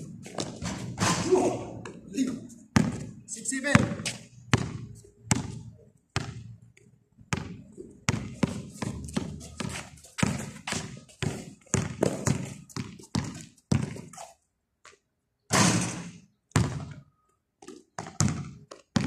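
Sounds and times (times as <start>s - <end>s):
basketball bouncing on concrete: 2.7s - 14.2s, 15.6s - 19.0s.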